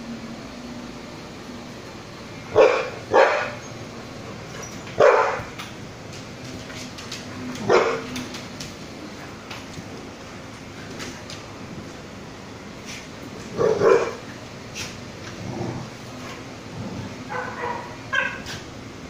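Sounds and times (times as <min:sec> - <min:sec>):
dog barking: 0:02.5 - 0:03.6, 0:05.0 - 0:05.5, 0:07.6 - 0:08.1, 0:13.6 - 0:14.2, 0:17.3 - 0:18.5.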